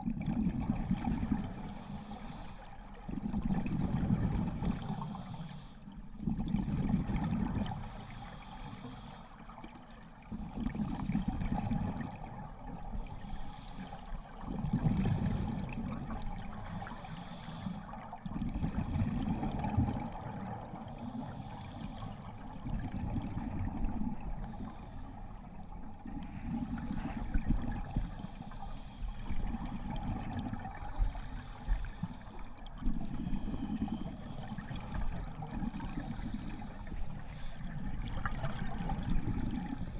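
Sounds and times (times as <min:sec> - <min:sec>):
exhaled bubbles gurgling: 0:00.0 - 0:39.9
regulator hissing inhale: 0:01.3 - 0:02.8, 0:04.6 - 0:06.0, 0:07.7 - 0:09.4, 0:12.9 - 0:14.2, 0:16.4 - 0:18.0, 0:20.7 - 0:22.4, 0:24.4 - 0:25.5, 0:26.7 - 0:29.5, 0:30.8 - 0:35.4, 0:36.1 - 0:37.8.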